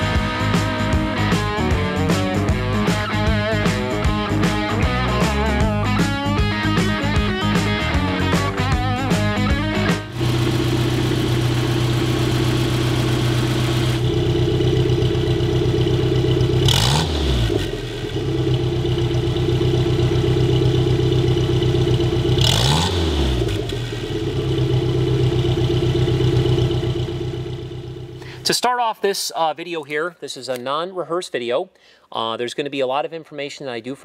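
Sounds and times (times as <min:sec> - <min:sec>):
car engine idling and revving: 0:07.1 - 0:28.2.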